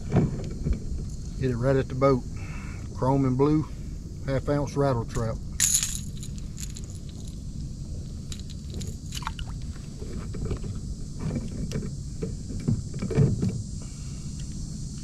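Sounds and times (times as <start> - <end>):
steady low rumble: 0.0 - 13.0
lure clicks and rattles: 8.3 - 9.3.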